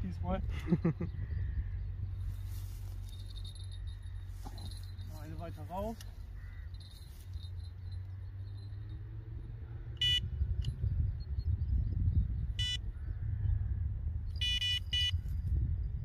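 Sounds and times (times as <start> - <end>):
electronic bite alarm beeping: 10.0 - 10.3, 12.6 - 12.9, 14.4 - 15.2.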